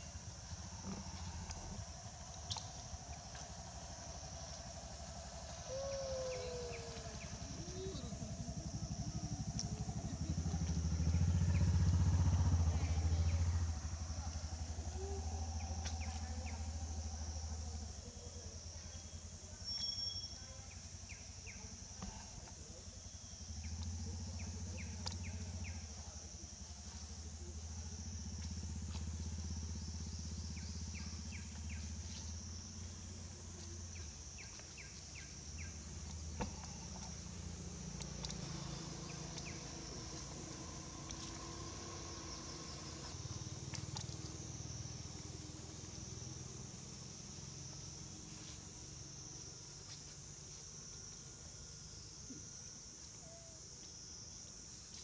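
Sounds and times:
high insect drone: 0:00.0 - 0:55.0
low engine-like hum: 0:00.0 - 0:55.0
short chirps: 0:19.6 - 0:20.4.

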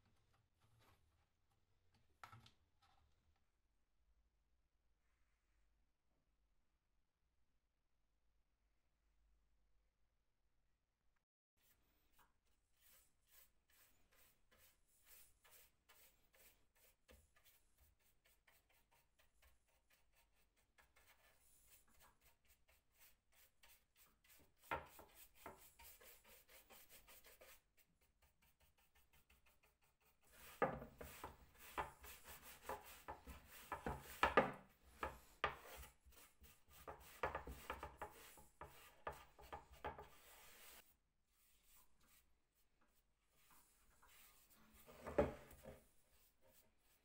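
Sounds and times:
wood being rubbed by hand: 0:12.8 - 0:40.8.

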